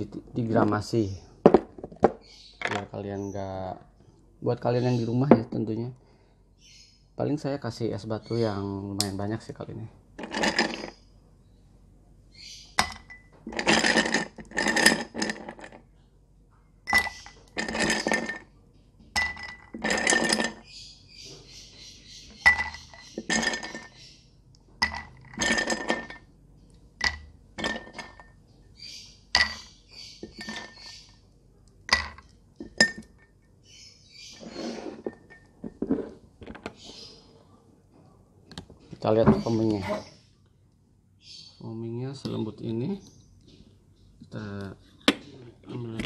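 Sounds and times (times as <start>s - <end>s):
ice rattling against glass: 10.2s - 11.0s, 12.8s - 15.8s, 16.9s - 18.5s, 19.2s - 20.7s, 22.4s - 24.0s, 24.8s - 26.2s, 27.0s - 28.3s, 29.4s - 31.1s
ice cubes clinking into glass: 12.8s - 15.8s, 16.9s - 18.4s, 19.2s - 20.6s, 22.4s - 24.0s, 24.8s - 26.2s, 27.0s - 28.2s, 29.4s - 31.0s.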